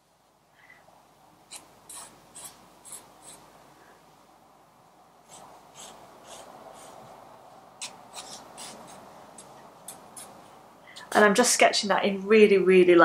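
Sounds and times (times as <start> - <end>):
pencil scratching on paper: 1.5 - 3.4, 5.3 - 7.2, 7.8 - 9.5.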